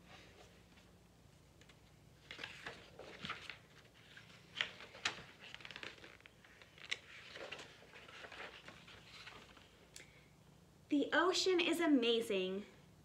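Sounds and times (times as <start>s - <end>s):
stiff paper rustling: 1.7s - 9.8s.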